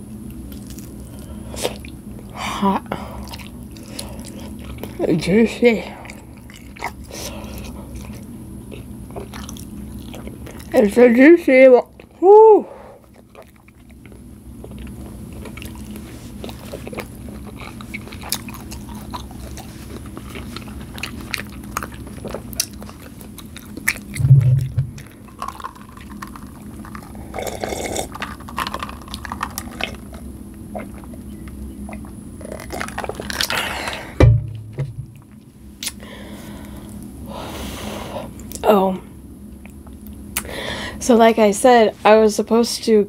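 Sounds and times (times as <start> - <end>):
chewing and wet mouth sounds: 0.2 - 11.1, 11.8 - 12.2, 13.0 - 34.1
low thump: 24.2 - 24.9, 34.2 - 35.2.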